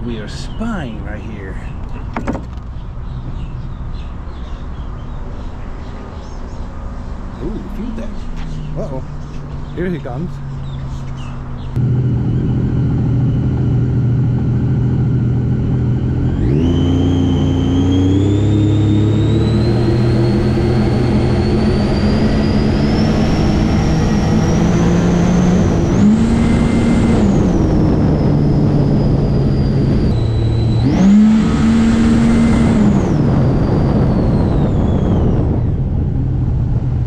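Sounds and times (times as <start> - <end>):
high engine whine: 0.0 - 37.0
jet ski engine at full throttle: 11.7 - 37.0.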